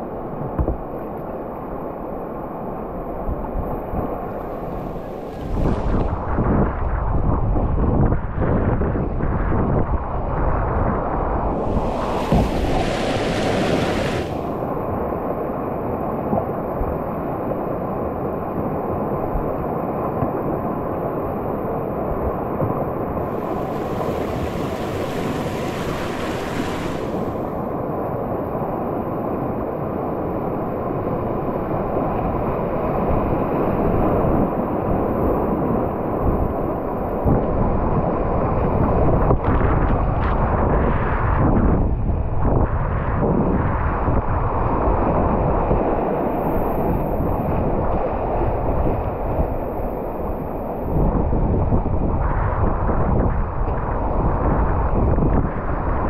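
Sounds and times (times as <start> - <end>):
wind buffeting microphone: 3.2 - 29.9, 30.8 - 56.0
rushing whitewater roar: 4.1 - 6.2, 11.5 - 16.1, 23.2 - 28.1.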